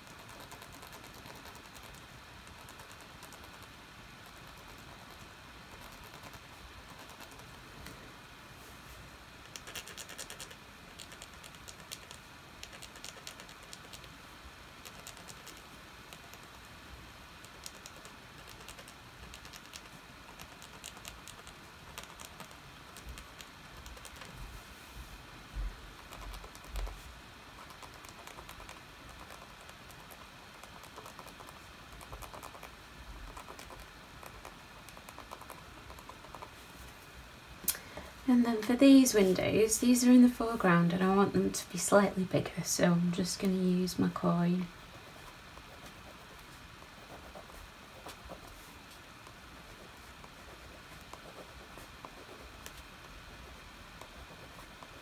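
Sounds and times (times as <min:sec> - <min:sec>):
toothpick scratching wax: 0:00.0 - 0:07.5, 0:09.5 - 0:14.1, 0:14.8 - 0:16.6, 0:17.4 - 0:24.3, 0:27.6 - 0:36.5, 0:49.7 - 0:55.0.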